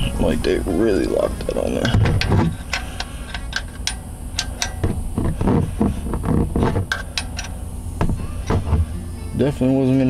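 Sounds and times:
wrench clicking against metal bolt: 0:02.2 - 0:05.0, 0:06.9 - 0:07.6.

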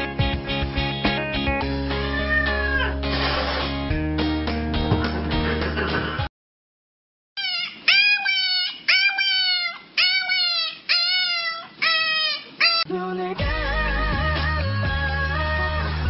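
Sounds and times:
music: 0:00.0 - 0:06.3, 0:12.9 - 0:16.0
dog howling: 0:02.0 - 0:03.0, 0:07.5 - 0:12.9.

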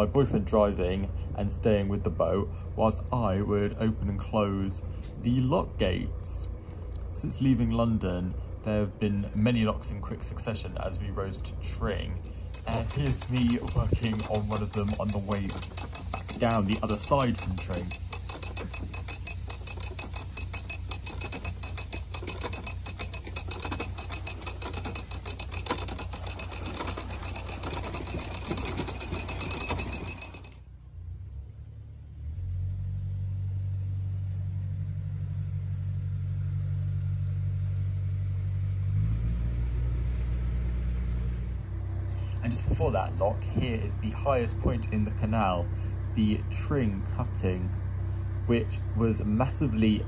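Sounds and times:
boat engine idling: 0:12.2 - 0:30.6
ratchet clicking: 0:12.2 - 0:30.6.

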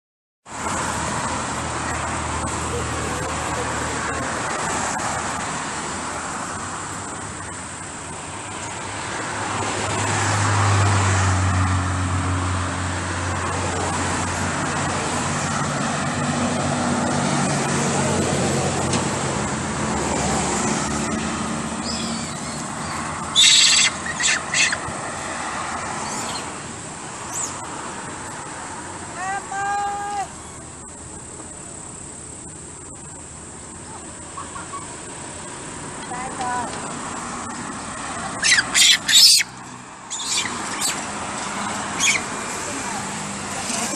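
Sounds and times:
vehicle engine hum: 0:00.4 - 0:43.9
road traffic hiss: 0:00.5 - 0:43.9.

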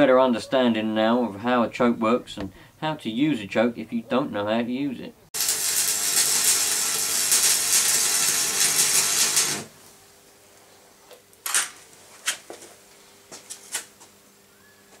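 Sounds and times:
arc welding crackling sizzle: 0:05.4 - 0:10.0.

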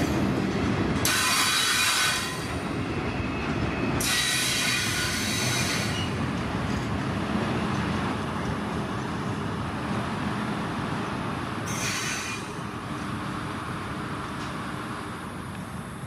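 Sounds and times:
train wheels rumbling on rails: 0:00.0 - 0:16.0
high-pitched wheel squeal: 0:11.7 - 0:12.6.

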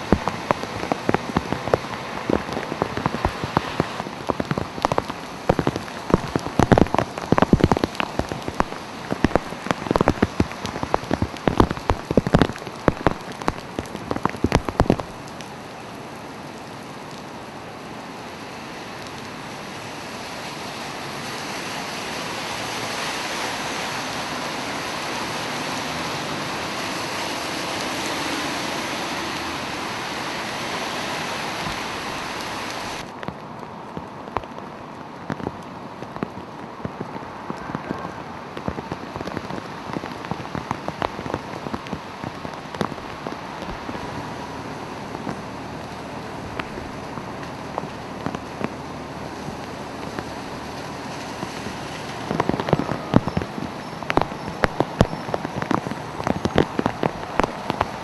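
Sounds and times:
large raindrops spattering: 0:00.0 - 0:58.0
rain hissing on wet pavement: 0:00.0 - 0:58.0.

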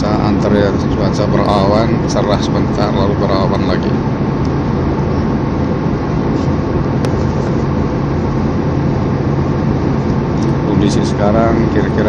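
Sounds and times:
airliner cabin drone: 0:00.0 - 0:12.0.

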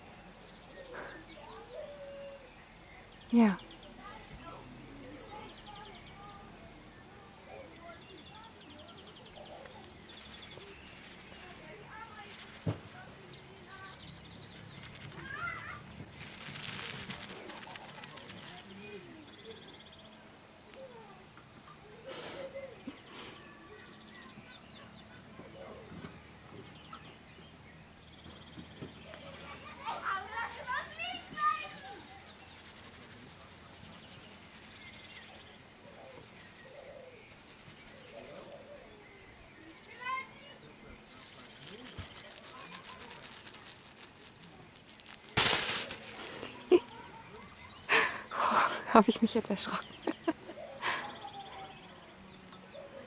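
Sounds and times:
faint bird chirps: 0:00.2 - 0:12.6, 0:45.8 - 0:53.0
soft rustling hiss: 0:03.2 - 0:24.6, 0:26.8 - 0:53.0
bird chirping: 0:07.5 - 0:20.2, 0:33.7 - 0:53.0.

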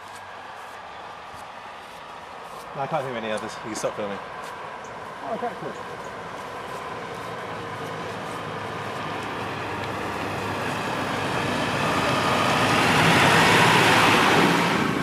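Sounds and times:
tractor diesel engine passing: 0:05.0 - 0:15.0.

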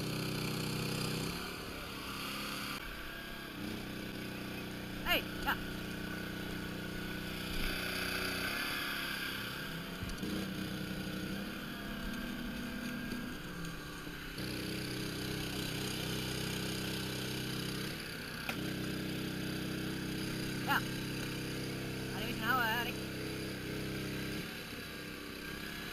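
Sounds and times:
boat engine running: 0:00.0 - 0:25.9.

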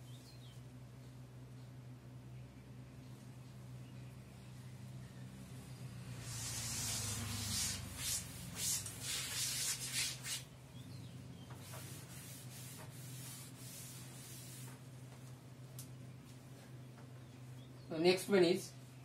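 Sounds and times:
steady low hum: 0:00.0 - 0:19.0
duster wiping chalkboard: 0:06.1 - 0:10.5, 0:11.5 - 0:14.9.

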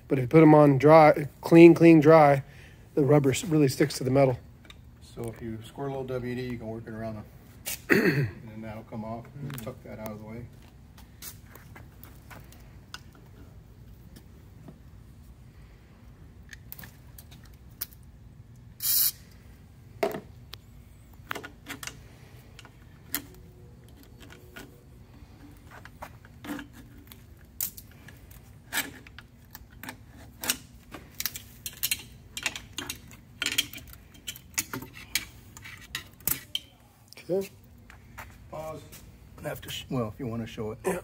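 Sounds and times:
short hiss: 0:18.8 - 0:19.3
screwdriver clicks and metallic clinks: 0:28.7 - 0:36.7.

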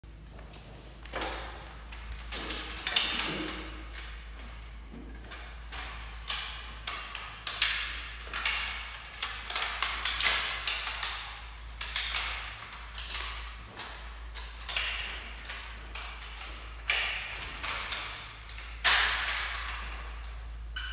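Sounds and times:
steady low hum: 0:00.0 - 0:20.9
mop swishing on tiled floor: 0:00.2 - 0:02.2.

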